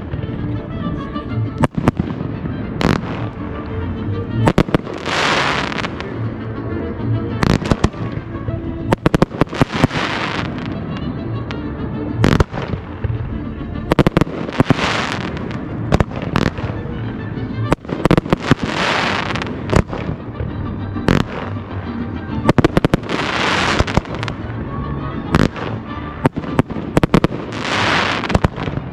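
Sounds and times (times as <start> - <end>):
background music: 0.0 - 28.9
fireworks bursting: 1.5 - 6.3, 7.4 - 11.6, 12.2 - 21.8, 22.4 - 24.6, 25.3 - 28.9
fireworks crackling hiss: 4.5 - 6.1, 8.9 - 10.7, 13.9 - 16.5, 22.6 - 24.4, 27.0 - 28.9.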